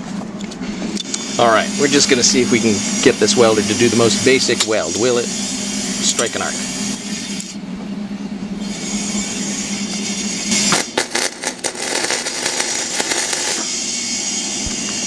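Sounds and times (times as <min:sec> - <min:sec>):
steady low hum: 0:09.6 - 0:13.9
welding arc crackling: 0:10.6 - 0:13.7.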